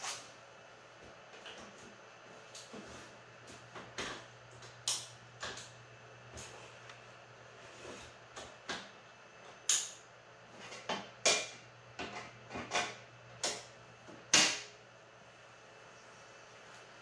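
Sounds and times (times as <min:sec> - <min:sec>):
faint low hum: 0:11.5 - 0:17.0.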